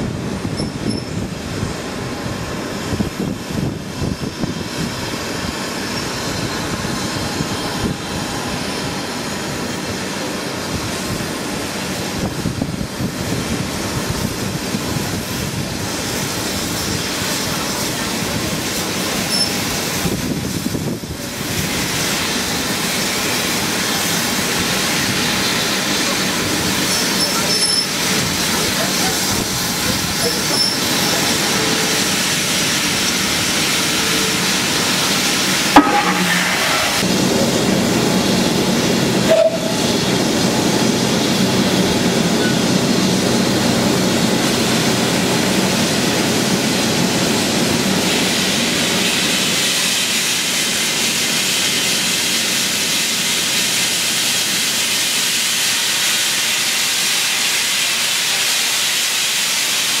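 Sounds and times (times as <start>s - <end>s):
steam hissing: 0.0s - 60.0s
sharp metallic knock: 35.8s - 36.7s.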